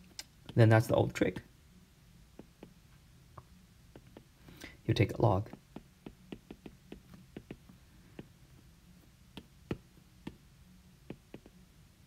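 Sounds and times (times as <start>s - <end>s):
stylus tapping on glass screen: 2.4s - 2.8s, 3.4s - 4.3s, 5.5s - 8.3s, 11.1s - 11.5s.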